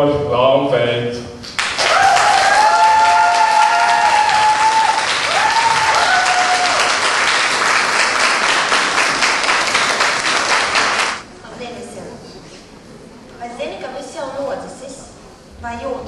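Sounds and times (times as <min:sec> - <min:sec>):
audience applauding: 0:01.5 - 0:11.2
vocal cheers: 0:01.8 - 0:07.0.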